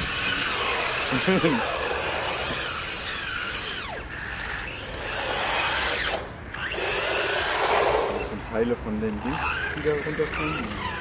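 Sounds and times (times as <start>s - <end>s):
rc car motor whine: 0.0s - 11.0s
tyres hissing on wet asphalt: 6.8s - 8.6s.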